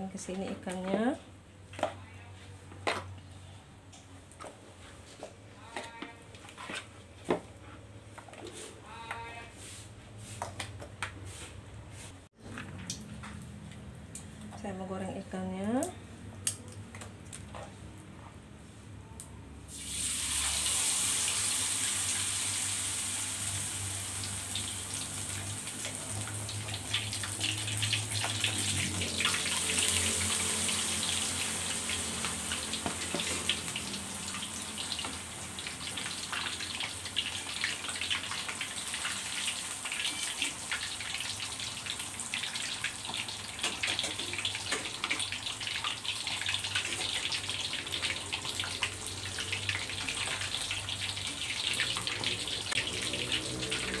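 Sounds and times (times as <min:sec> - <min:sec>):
fish deep-frying sizzle: 0:19.7 - 0:54.0.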